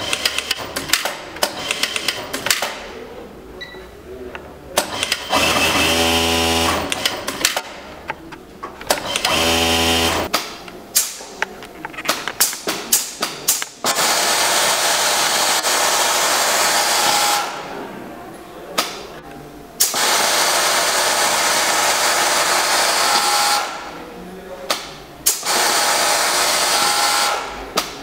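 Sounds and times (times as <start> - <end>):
overlock machine whirring: 4.8 - 8.1, 8.8 - 10.3, 12.4 - 17.8, 19.8 - 24.0, 25.2 - 27.7.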